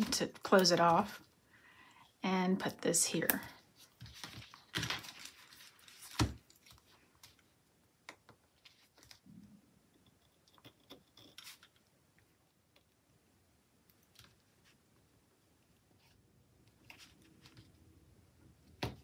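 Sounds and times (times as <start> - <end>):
paper rustling: 3.8 - 7.4.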